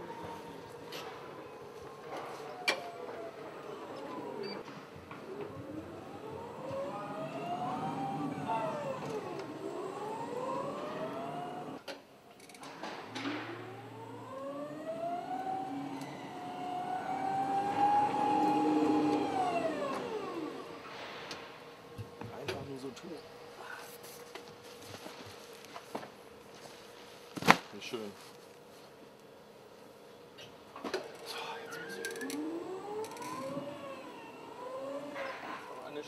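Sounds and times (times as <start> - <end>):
electric motor whining: 3.0 - 11.8, 13.1 - 20.9, 31.5 - 36.0.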